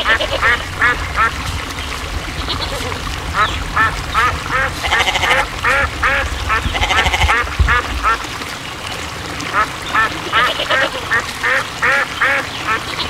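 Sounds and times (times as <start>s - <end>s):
low rumble: 0.0s - 9.6s
ducks quacking: 0.0s - 13.0s.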